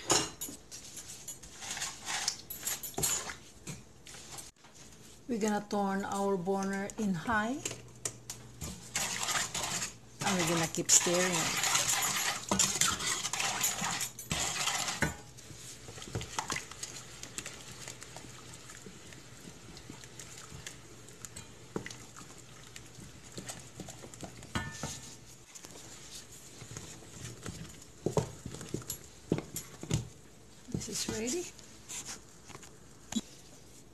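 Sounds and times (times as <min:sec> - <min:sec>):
wooden spoon scraping saucepan: 0:00.7 - 0:02.6, 0:08.6 - 0:16.3.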